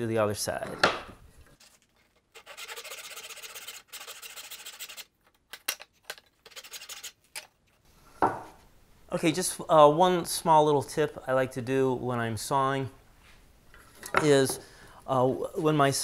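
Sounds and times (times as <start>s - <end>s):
hand saw cutting wood: 2.2s - 5.1s.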